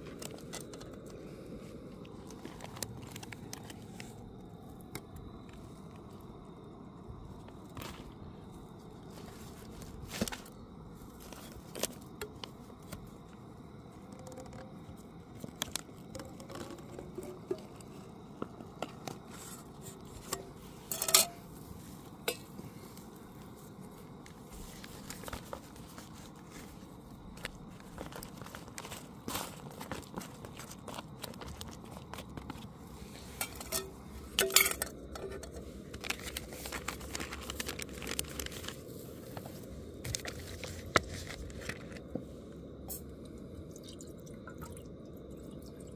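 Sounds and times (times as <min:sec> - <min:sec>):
food packaging rustling: 0:02.2 - 0:04.3, 0:07.7 - 0:13.1, 0:24.0 - 0:42.1
camp cooking gear clinking: 0:15.5 - 0:22.7, 0:27.2 - 0:38.7.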